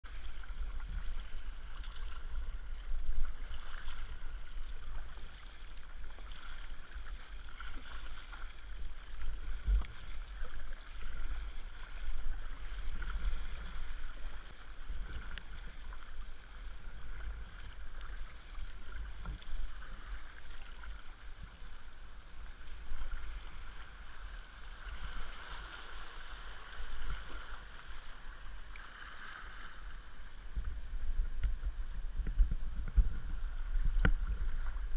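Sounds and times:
paddle blades dipping: 0.0s - 34.9s
water splashing along kayak hull: 0.0s - 34.9s
low microphone rumble: 0.1s - 34.9s.

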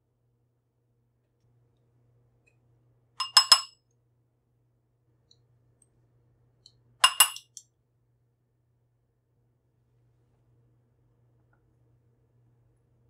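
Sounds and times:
metal spoon clinking on glass bowl: 3.2s - 3.7s, 7.0s - 7.6s.

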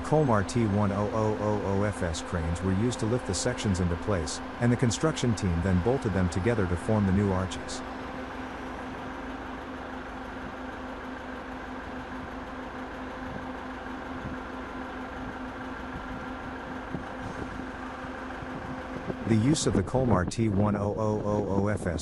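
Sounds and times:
engine humming at idle: 0.0s - 22.0s.

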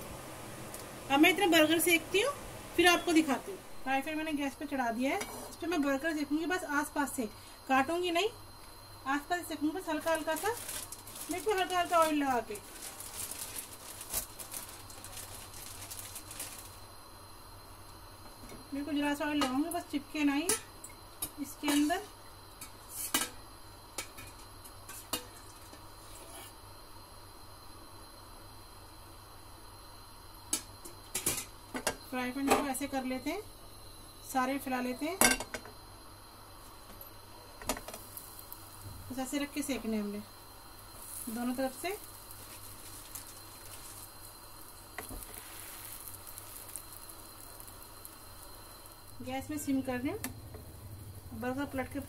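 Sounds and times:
oil sizzling in a frying pan: 8.6s - 26.4s, 27.4s - 52.0s
oil poured onto griddle: 42.1s - 44.2s, 45.0s - 48.2s.

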